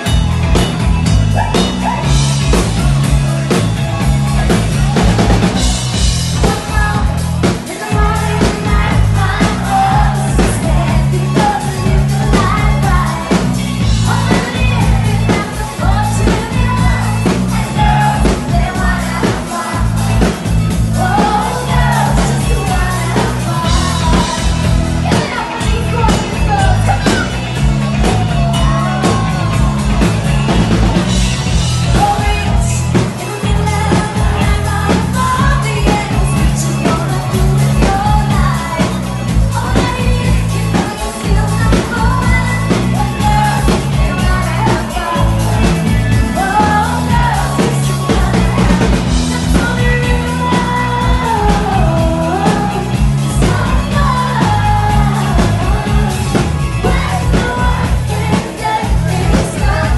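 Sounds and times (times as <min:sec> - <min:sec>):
drums: 0:00.0 - 0:59.9
electric guitar: 0:00.0 - 0:59.9
woman singing: 0:06.3 - 0:30.3, 0:31.8 - 0:59.9.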